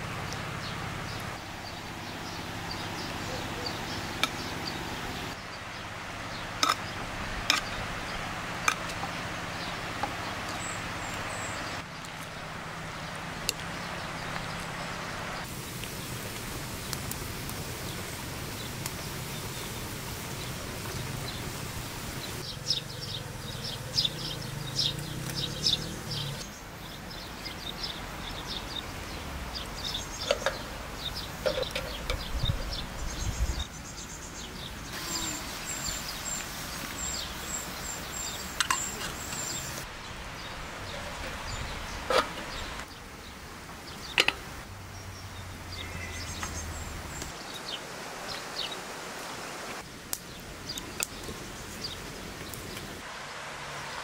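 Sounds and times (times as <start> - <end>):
birds: 0.0 - 54.0
insects: 32.8 - 42.8.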